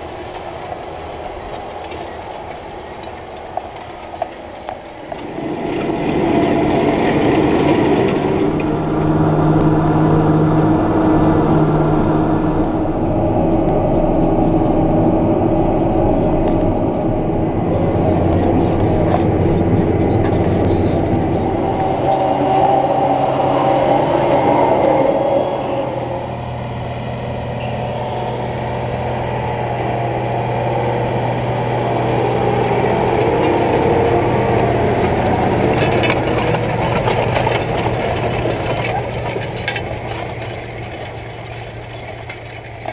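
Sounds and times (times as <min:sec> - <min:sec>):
tractor diesel engine under load: 0:00.0 - 0:42.9
cultivator discs rattling: 0:30.7 - 0:42.9.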